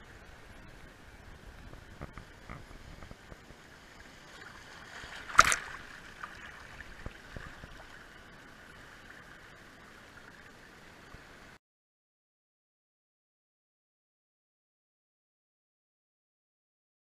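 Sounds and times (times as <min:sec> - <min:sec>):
seawater washing over sand: 0:00.1 - 0:08.0
loud water splash: 0:04.4 - 0:06.9.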